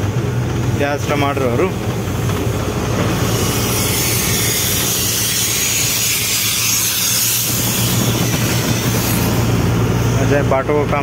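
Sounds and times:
truck engine running: 0.0s - 11.0s
loud even hiss: 3.1s - 10.2s.

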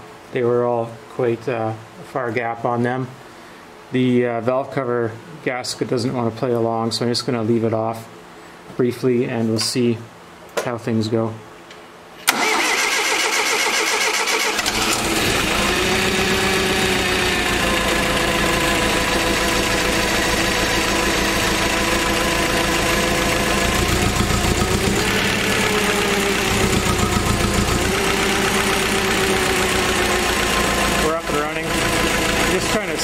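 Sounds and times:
forklift engine cranking: 12.3s - 33.0s
engine running steadily: 14.6s - 33.0s.

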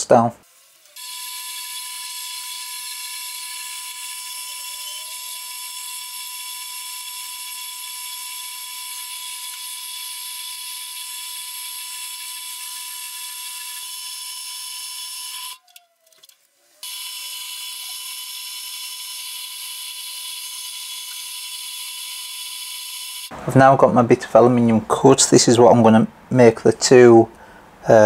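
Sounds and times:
bandsaw cutting metal: 1.0s - 15.6s, 16.8s - 23.3s.

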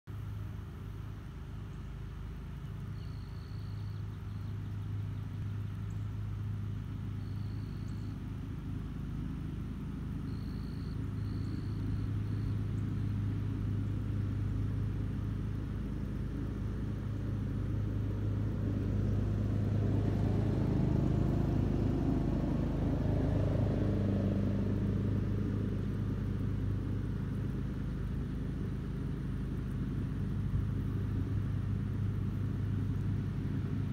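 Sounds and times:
low motor rumble: 0.1s - 33.9s
faint high chirps: 2.8s - 5.0s, 7.1s - 8.2s, 10.2s - 13.2s.

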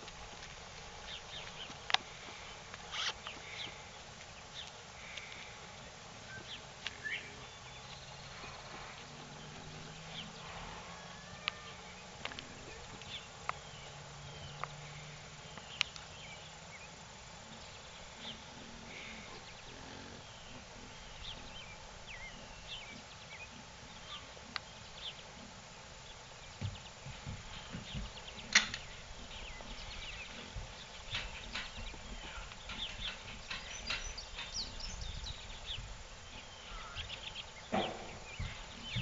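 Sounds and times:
faint low hum: 0.0s - 39.0s
steady hiss: 0.0s - 39.0s
insect noise: 0.1s - 39.0s
sharp ticks and knocks: 26.6s - 28.9s, 31.1s - 34.7s, 37.7s - 38.8s
bird chirps: 27.5s - 39.0s.

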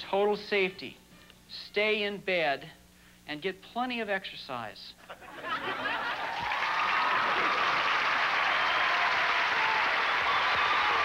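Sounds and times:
studio audience applauding: 5.8s - 11.0s.

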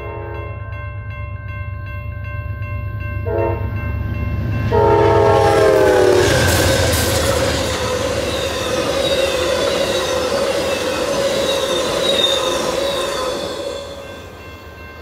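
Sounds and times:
locomotive horn blasts: 0.0s - 0.5s, 3.2s - 3.7s, 4.7s - 7.0s
crossing bells ringing: 0.0s - 15.0s
train passing rumble: 0.0s - 15.0s.

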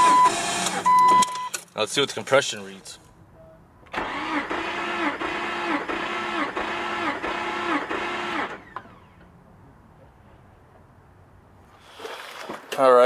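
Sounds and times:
starter motor cranking engine: 3.9s - 9.2s.

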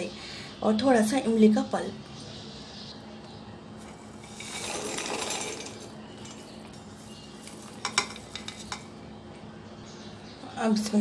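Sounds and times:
hard pieces rattling in metal jar: 4.2s - 6.4s.

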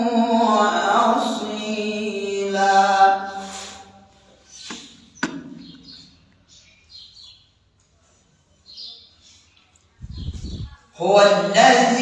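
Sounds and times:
small birds chirping: 3.6s - 11.1s.

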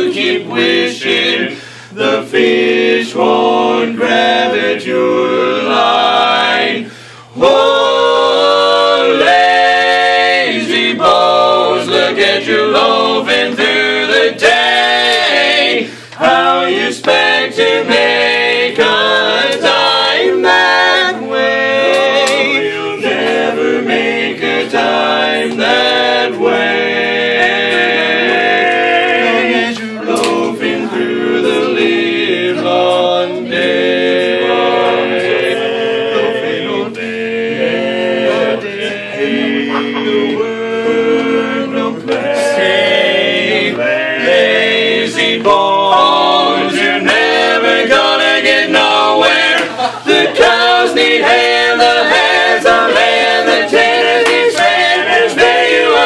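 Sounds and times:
men singing a cappella in harmony: 0.0s - 56.0s.

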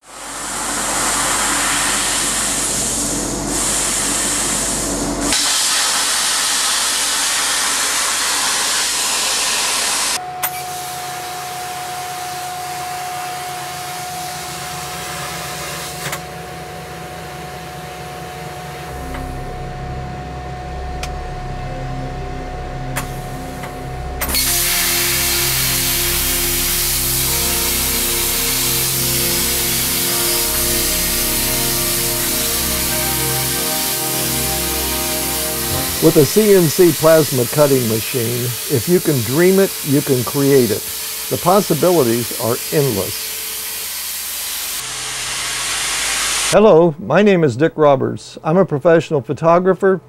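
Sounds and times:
plasma cutter torch hissing: 0.0s - 11.4s, 24.2s - 46.6s
machine noise with high whine: 0.0s - 46.6s
low hum: 16.3s - 40.1s.

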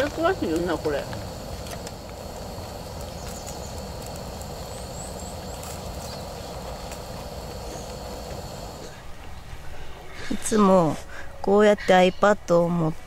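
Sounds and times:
outdoor ambient rumble: 0.0s - 9.8s
faint bird chirps: 2.9s - 6.8s.

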